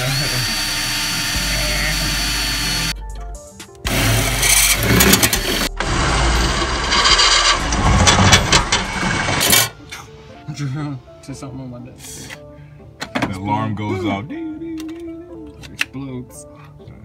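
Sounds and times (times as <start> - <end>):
cordless drill boring through metal: 0.0 - 3.0, 3.9 - 9.7
music: 0.0 - 17.0.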